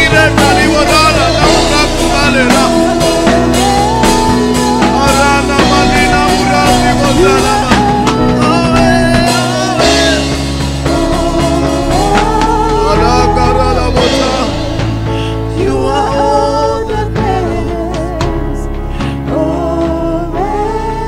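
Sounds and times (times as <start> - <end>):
bass: 0.0 - 21.0
drums: 0.0 - 21.0
people singing: 0.0 - 21.0.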